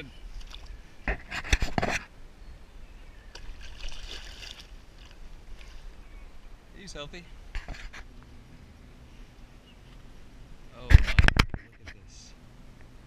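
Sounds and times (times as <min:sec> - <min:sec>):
fish splashing at water surface: 0:03.4 - 0:05.1.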